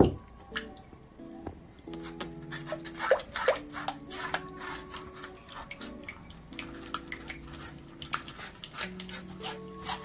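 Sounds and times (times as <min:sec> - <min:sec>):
sauce trickling into pan: 0:01.9 - 0:09.7
metal spoon scraping wire strainer: 0:02.0 - 0:10.0.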